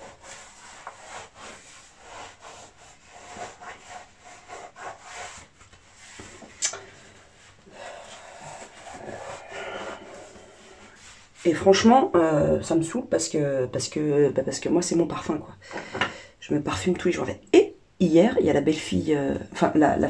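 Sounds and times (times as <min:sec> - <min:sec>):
objects rubbing and rustling: 0:00.0 - 0:12.2.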